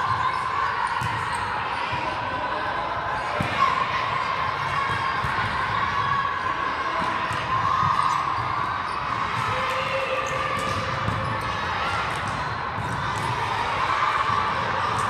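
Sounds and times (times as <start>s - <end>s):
players chattering in hall: 0.0s - 15.0s
volleyballs struck and bouncing: 3.2s - 6.0s, 6.9s - 15.0s.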